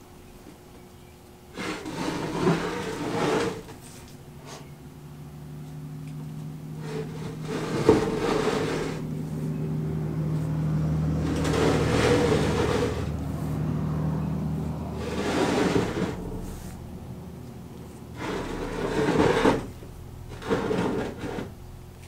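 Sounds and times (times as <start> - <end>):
steel base scraping on tabletop: 1.5 - 4.7, 6.8 - 9.1, 11.2 - 13.2, 15.0 - 16.8, 18.1 - 21.6.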